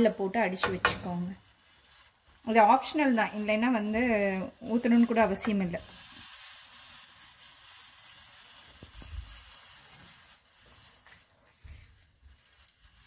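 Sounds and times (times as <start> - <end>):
gravy simmering with soft hiss: 0.0 - 13.0.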